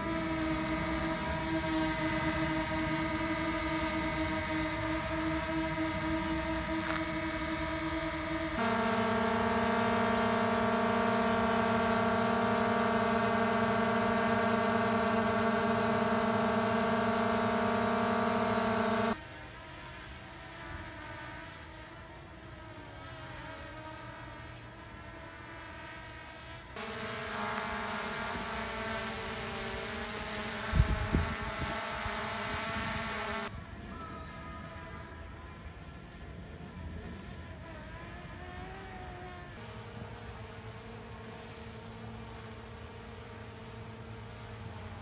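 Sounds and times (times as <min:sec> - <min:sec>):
drones buzzing: 0:00.0 - 0:19.2, 0:26.7 - 0:33.7, 0:37.6 - 0:45.0
wavering hum: 0:00.0 - 0:19.2, 0:26.8 - 0:33.6.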